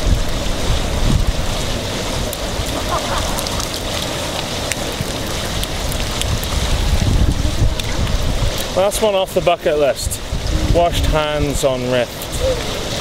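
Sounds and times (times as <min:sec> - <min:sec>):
water splashing down steel wall: 0:00.0 - 0:13.0
wind rumbling on microphone: 0:00.0 - 0:13.0.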